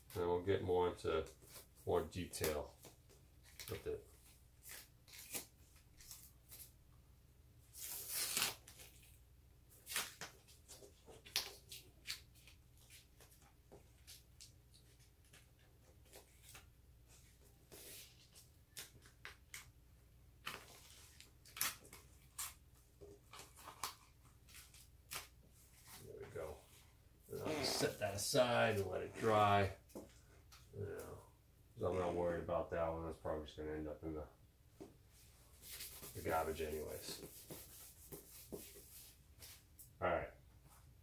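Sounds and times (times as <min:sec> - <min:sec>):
masking tape ripping: 0:04.6 - 0:06.2, 0:07.8 - 0:08.9.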